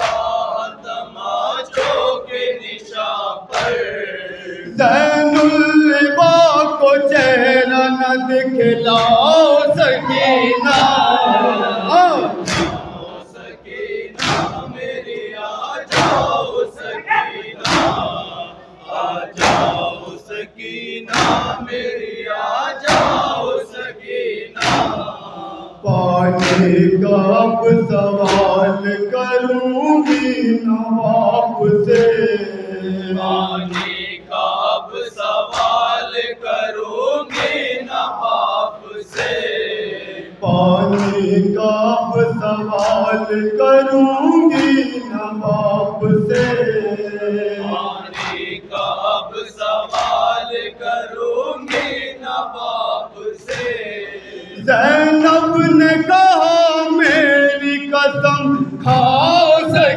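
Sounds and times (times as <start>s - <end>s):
chest slaps in unison: 0.0s - 0.6s, 1.7s - 2.2s, 3.5s - 4.1s, 8.9s - 9.4s, 10.1s - 13.2s, 14.1s - 15.2s, 15.8s - 18.4s, 19.3s - 20.0s, 21.1s - 21.7s, 22.8s - 23.5s, 24.6s - 25.2s, 26.3s - 26.8s, 28.2s - 28.7s, 31.9s - 32.3s, 33.4s - 34.2s, 35.4s - 36.0s, 37.2s - 37.8s, 40.5s - 41.3s, 42.7s - 43.2s, 44.5s - 44.9s, 45.6s - 46.8s, 47.8s - 50.4s, 51.6s - 52.2s, 53.4s - 53.9s
man reciting into a microphone: 0.0s - 59.9s
men chanting a lament: 0.0s - 59.9s.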